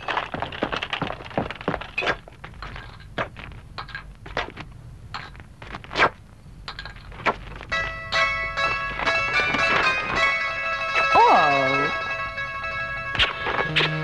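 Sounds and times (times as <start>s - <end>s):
music: 7.7s - 14.0s.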